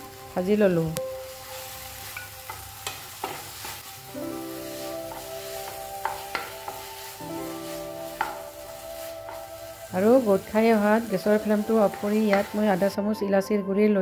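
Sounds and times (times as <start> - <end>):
light sizzle: 0.0 - 13.2
soft background music: 0.0 - 14.0
wooden spatula scraping pan: 4.6 - 12.9.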